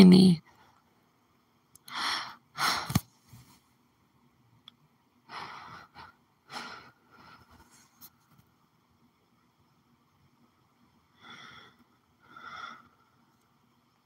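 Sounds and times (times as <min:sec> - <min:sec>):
woman breathing heavily: 0:01.8 - 0:03.0, 0:05.2 - 0:07.7, 0:11.1 - 0:13.3.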